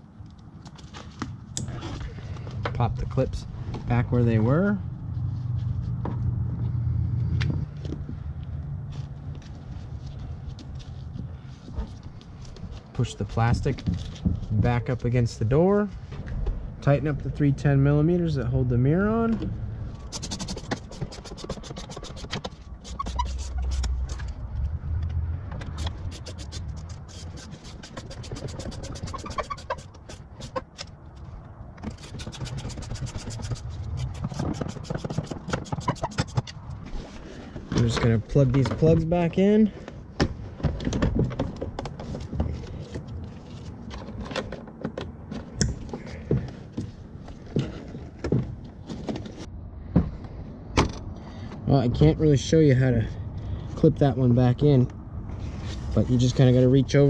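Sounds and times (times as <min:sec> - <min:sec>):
low rumble: 0:01.7 - 0:09.7, 0:15.4 - 0:20.2, 0:22.5 - 0:27.3.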